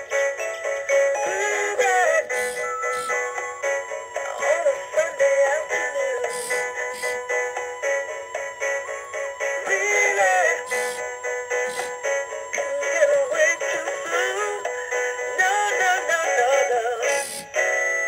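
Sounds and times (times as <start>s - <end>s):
synthesized singing voice: 1.1s - 3.3s, 4.2s - 7.3s, 9.6s - 17.6s.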